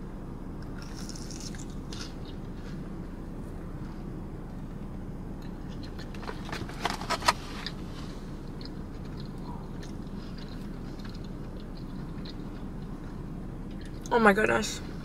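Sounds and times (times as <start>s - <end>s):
low hum of car cabin: 0.0s - 15.0s
crunchy bites and chewing: 0.6s - 2.9s, 5.4s - 14.1s.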